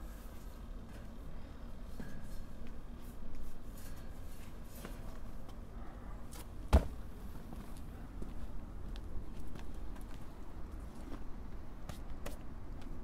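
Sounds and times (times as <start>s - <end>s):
sharp thump: 6.7s - 7.0s.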